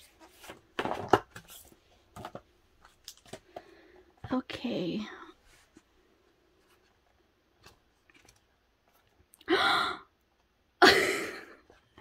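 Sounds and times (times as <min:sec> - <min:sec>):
breathy gasp: 0:09.5 - 0:10.1.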